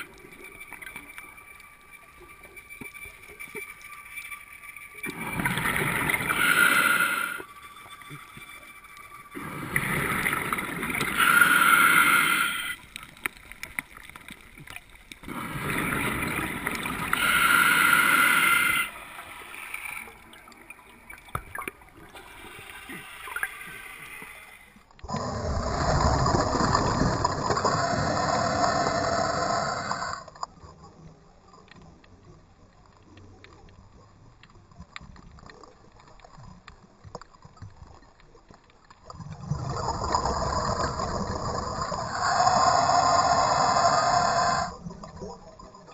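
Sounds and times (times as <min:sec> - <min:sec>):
rushing underwater noise: 0:00.0 - 0:30.4, 0:39.1 - 0:45.9
scuba regulator exhaled bubbles: 0:05.0 - 0:07.5, 0:09.3 - 0:14.2, 0:15.1 - 0:24.5
diver breathing: 0:05.1 - 0:07.5, 0:09.4 - 0:13.0, 0:15.2 - 0:20.6, 0:22.0 - 0:25.8, 0:27.6 - 0:30.3, 0:41.6 - 0:44.8.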